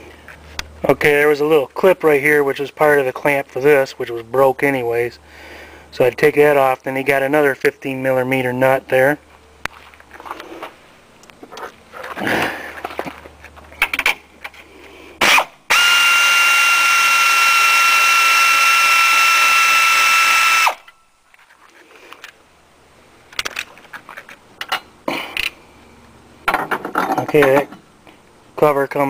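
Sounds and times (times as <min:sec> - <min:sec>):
tool handling clicks and knocks: 0:12.8 - 0:14.7, 0:23.3 - 0:25.6, 0:26.4 - 0:27.8
power tool motor whining: 0:15.2 - 0:20.9.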